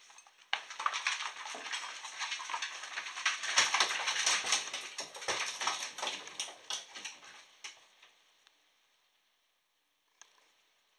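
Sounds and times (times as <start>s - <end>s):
puppies' claws clicking on tiles: 0.0s - 7.8s.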